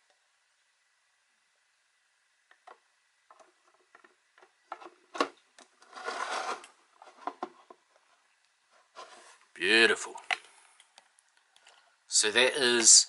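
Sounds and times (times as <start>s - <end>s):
plastic sliding scrape: 5.8s - 7.6s, 8.8s - 9.4s.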